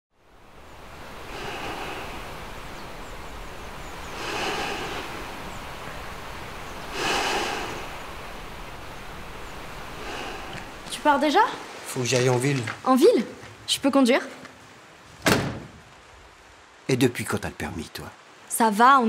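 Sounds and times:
steady outdoor rushing noise: 0.2 - 12.0.

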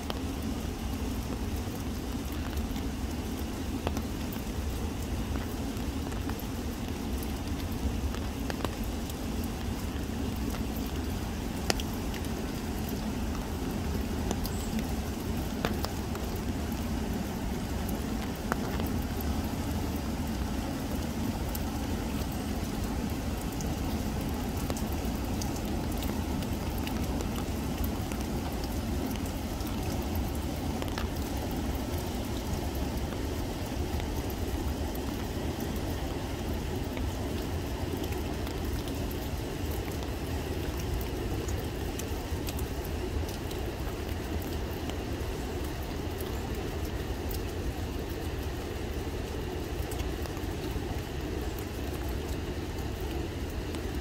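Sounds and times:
rain pattering on leaves: 0.0 - 54.0
river water running over rocks: 0.0 - 54.0.

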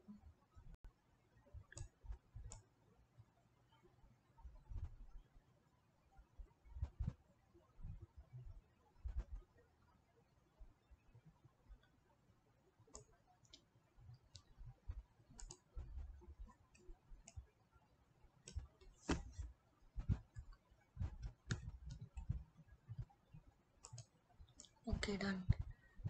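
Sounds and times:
computer mouse clicking: 1.7 - 2.6, 12.9 - 17.5, 18.4 - 23.1, 23.8 - 24.9
soft low bumps: 18.5 - 23.1.

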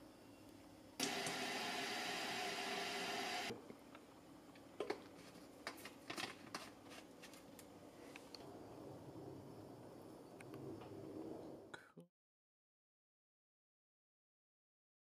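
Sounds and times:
water running from tap into bottle: 1.0 - 3.5.

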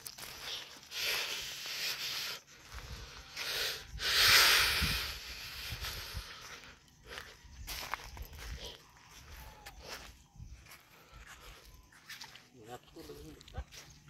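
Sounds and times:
man breathing: 0.3 - 7.4
wind rumble on microphone: 3.8 - 6.5.

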